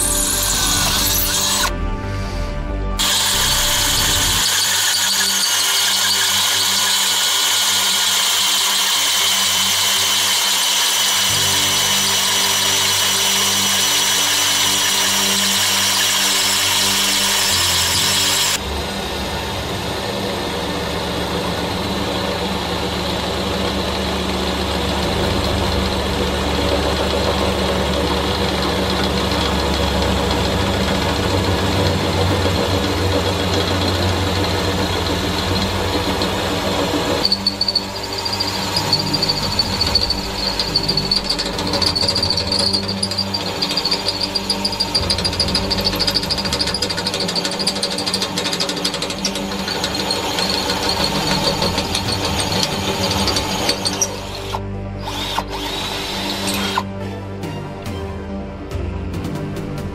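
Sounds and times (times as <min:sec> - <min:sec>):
drill bit chatter: 0:00.0 - 0:01.7, 0:03.0 - 0:18.6, 0:23.9 - 0:56.9
drill boring through steel: 0:00.0 - 0:01.7, 0:03.0 - 0:18.7, 0:20.7 - 0:56.9
high drill bit squeal: 0:00.0 - 0:01.7, 0:03.0 - 0:18.6, 0:28.2 - 0:56.9.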